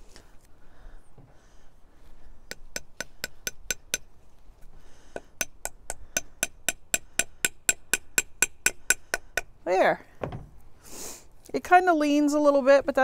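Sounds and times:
hammer tapping wooden dowel: 2.5 - 4.1, 5.1 - 9.5.

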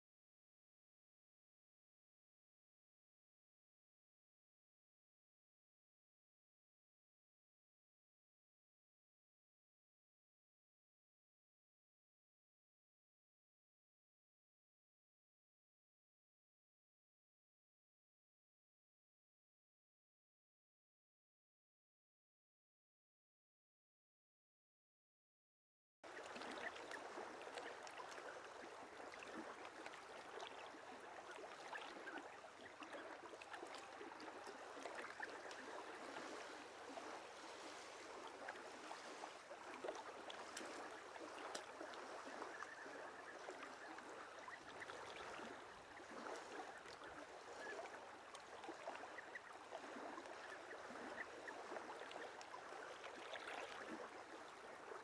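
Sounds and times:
river water flowing and lapping: 26.0 - 55.0.

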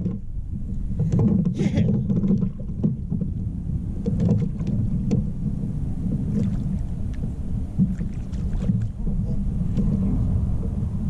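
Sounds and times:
waves slapping against hull: 0.0 - 11.0
wind buffeting microphone: 0.0 - 11.0.

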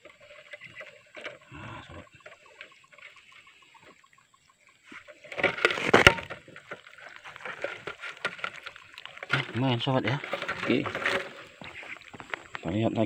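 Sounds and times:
water splashing in fish trap: 5.1 - 12.1.

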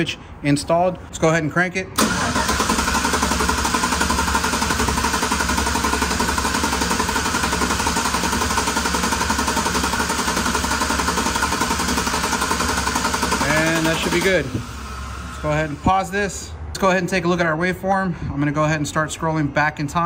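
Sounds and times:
engine cranking on starter: 2.0 - 16.0.

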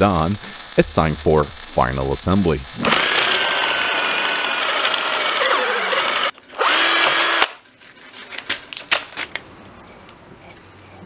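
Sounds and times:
cordless drill whining: 2.8 - 7.6.

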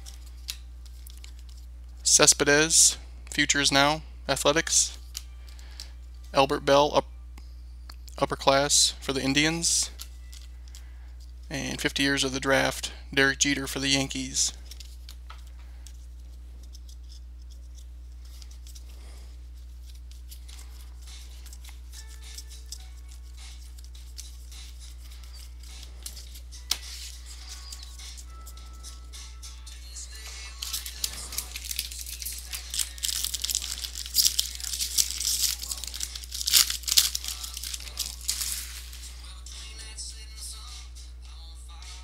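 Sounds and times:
steady low hum: 0.0 - 42.0
wrapper crinkling: 30.5 - 39.2.

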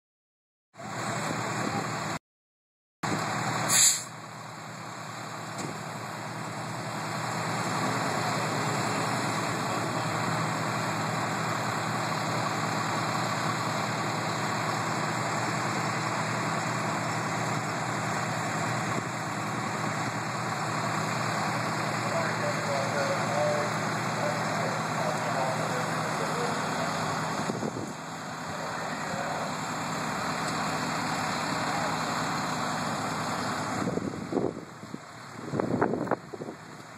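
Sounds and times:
diesel engine running: 0.8 - 2.2, 3.0 - 36.9
sharp hiss: 3.7 - 4.1.

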